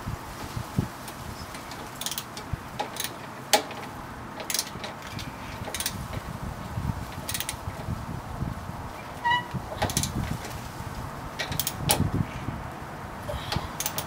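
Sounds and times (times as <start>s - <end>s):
socket ratchet clicking: 1.6s - 6.3s, 7.1s - 7.8s, 9.3s - 10.2s, 11.4s - 12.1s, 13.8s - 14.0s
sharp metallic click: 13.8s - 14.0s.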